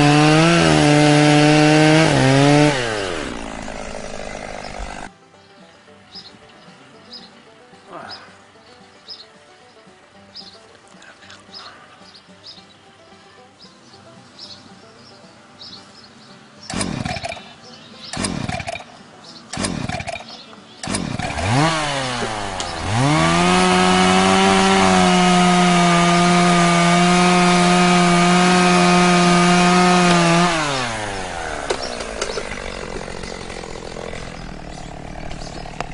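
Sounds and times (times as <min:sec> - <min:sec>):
chainsaw engine idling and revving: 0:00.0 - 0:05.1, 0:16.7 - 0:18.9, 0:19.5 - 0:35.9
starter cord tugs: 0:16.7 - 0:17.5, 0:18.1 - 0:18.8, 0:19.5 - 0:35.9.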